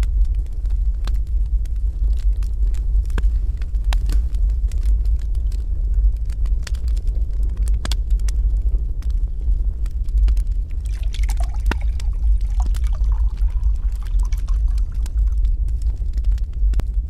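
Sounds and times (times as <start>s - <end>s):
deep steady rumble: 0.0s - 17.0s
wood fire crackling: 0.0s - 17.0s
liquid poured into glass: 10.8s - 15.4s.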